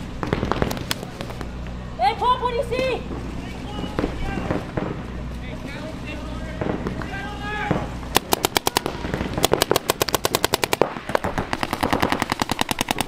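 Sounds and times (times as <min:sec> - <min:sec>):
paintball markers firing bursts: 0:07.7 - 0:13.0.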